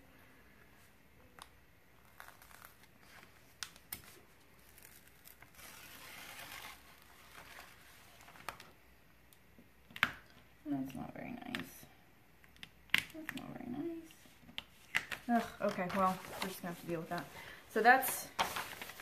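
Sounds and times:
paper rustling and crinkling: 0:02.0 - 0:08.8, 0:14.5 - 0:19.0.

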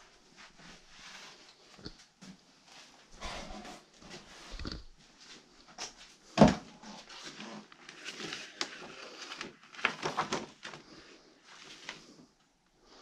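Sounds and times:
papers and cardboard rustling: 0:05.9 - 0:12.3.

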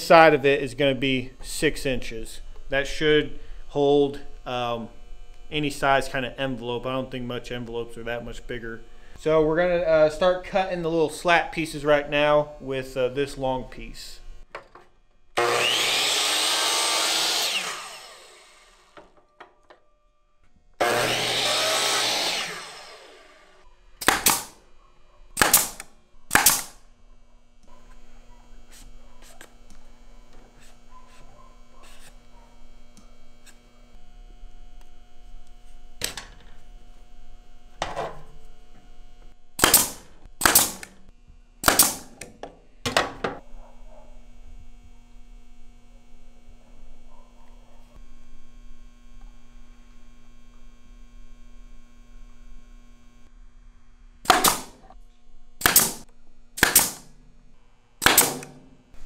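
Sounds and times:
nail gun firing: 0:24.0 - 0:24.6, 0:25.4 - 0:26.8, 0:39.6 - 0:41.0, 0:41.6 - 0:43.1, 0:54.2 - 0:54.9, 0:55.6 - 0:57.1, 0:58.0 - 0:58.7.

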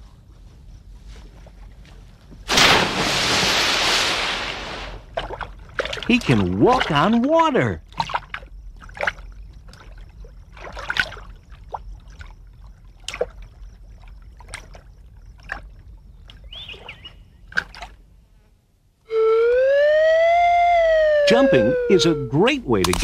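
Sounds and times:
lizard feet splashing on water: 0:05.1 - 0:07.2, 0:07.9 - 0:16.4
held whistle-like tone: 0:19.1 - 0:22.5.

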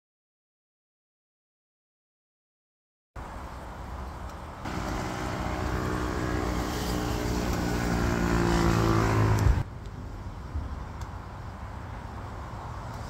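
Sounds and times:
vehicle engine droning: 0:04.6 - 0:09.7.

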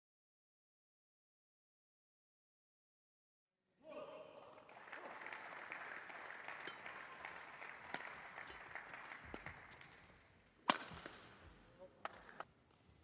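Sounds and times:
crowd noise and applause: 0:04.2 - 0:10.4
rackets striking shuttlecock: 0:07.9 - 0:12.4.

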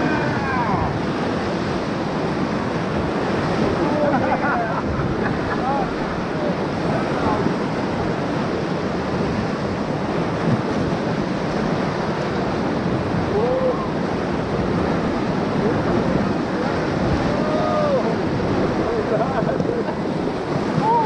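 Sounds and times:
people shouting: 0:00.0 - 0:00.9, 0:17.2 - 0:18.2
whitewater churning and rushing: 0:00.0 - 0:21.0.

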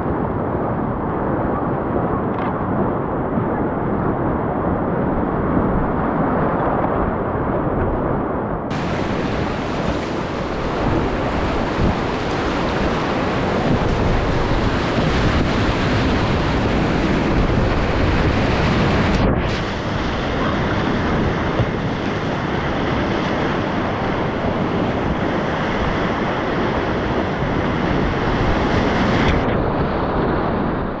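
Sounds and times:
water washing over microphone: 0:08.7 - 0:20.4
whitewater rushing and crashing: 0:08.7 - 0:30.0.

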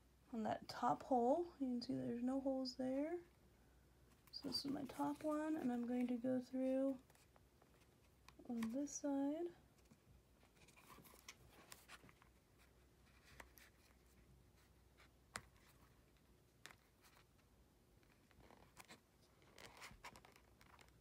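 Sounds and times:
needle and thread through leather: 0:18.3 - 0:21.0.

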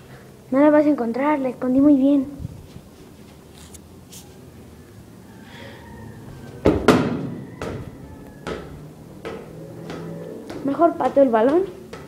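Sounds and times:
football knocking on hard surfaces: 0:06.6 - 0:12.0.

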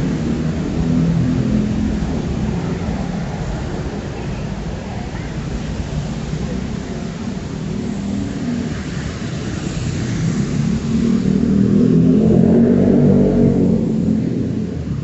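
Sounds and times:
vehicle accelerating past: 0:08.1 - 0:15.0.

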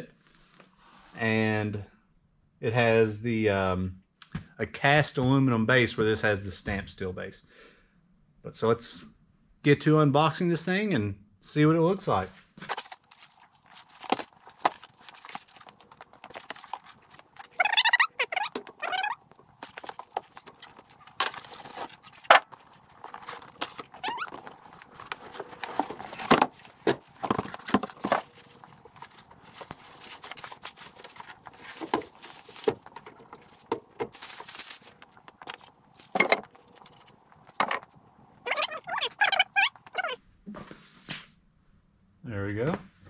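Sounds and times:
cardboard and packing pulled out: 0:12.7 - 0:40.2
plastic wrap rustling: 0:12.7 - 0:40.2
high squeaks: 0:13.0 - 0:40.2.

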